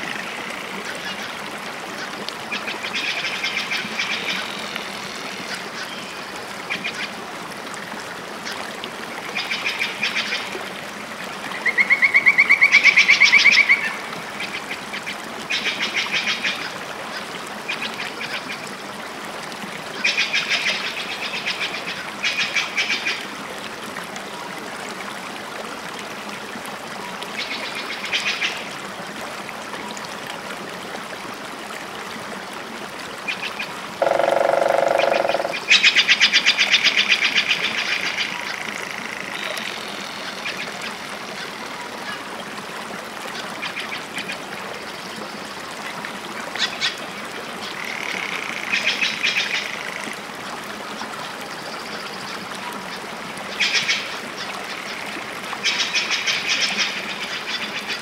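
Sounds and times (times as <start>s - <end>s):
rattling animal calls: 34.0s - 35.7s.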